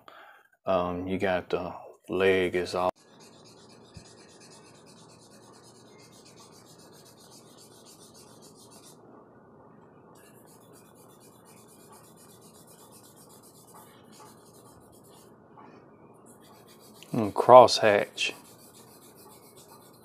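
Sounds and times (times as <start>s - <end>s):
charcoal scratching on paper: 3.0s - 9.0s, 10.2s - 15.3s, 16.3s - 20.0s.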